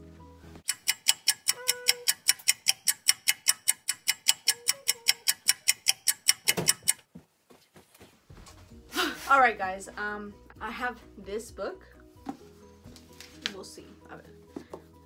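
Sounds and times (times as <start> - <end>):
clock ticking fast: 0.6 - 7.0.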